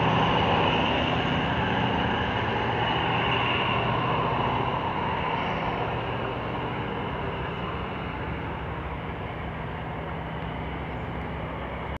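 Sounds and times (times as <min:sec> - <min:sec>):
diesel locomotive engine drone: 0:00.0 - 0:12.0
rail rumble: 0:00.0 - 0:12.0.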